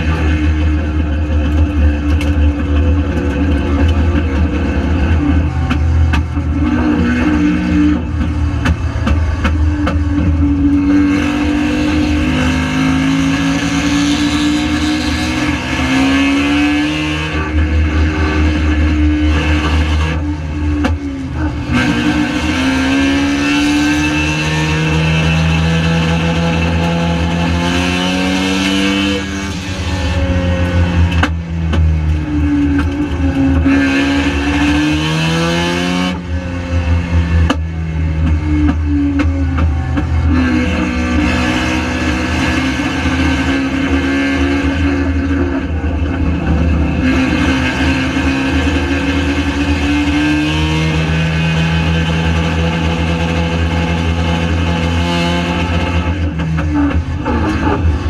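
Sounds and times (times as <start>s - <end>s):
deep rumble: 0.0s - 16.4s, 43.2s - 49.9s
race car engine revving: 0.0s - 58.0s.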